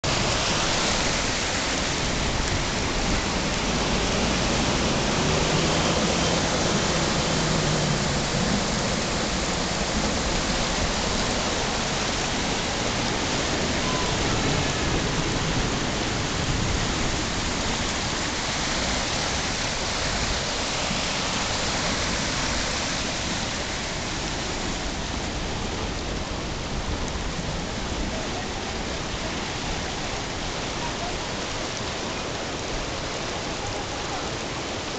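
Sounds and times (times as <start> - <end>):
heavy rain on standing water: 0.0 - 34.9.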